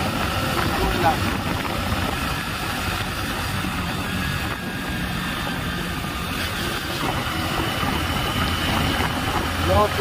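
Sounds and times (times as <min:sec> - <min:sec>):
motorcycle engine running: 0:00.0 - 0:10.0
wind and road noise: 0:00.0 - 0:10.0.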